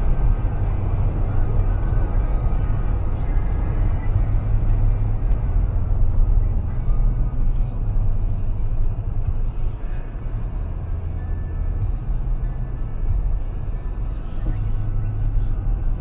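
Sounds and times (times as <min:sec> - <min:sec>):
car road and engine noise: 0:00.0 - 0:16.0.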